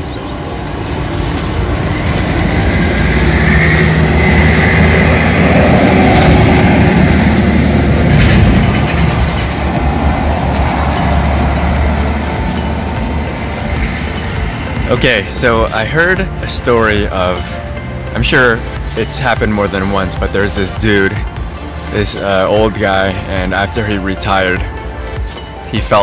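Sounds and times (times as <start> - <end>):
vehicles driving past: 0.0 - 26.0.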